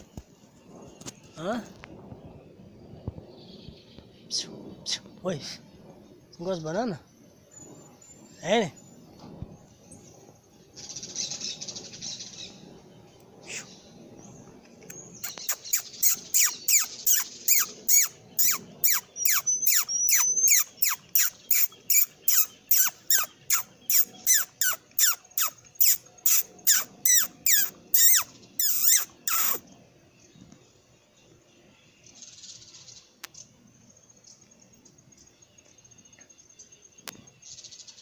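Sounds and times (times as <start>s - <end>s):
marmoset chirping: 14.8s - 29.6s.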